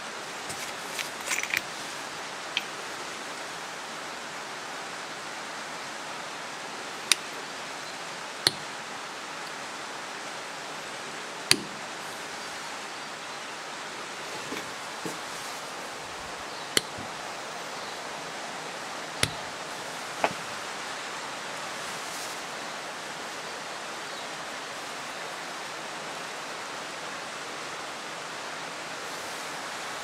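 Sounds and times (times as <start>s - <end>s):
steady hiss: 0.0s - 30.0s
riflescope turret clicks: 7.1s - 7.3s, 8.5s - 8.8s, 11.5s - 11.9s, 16.7s - 17.2s, 19.2s - 19.6s.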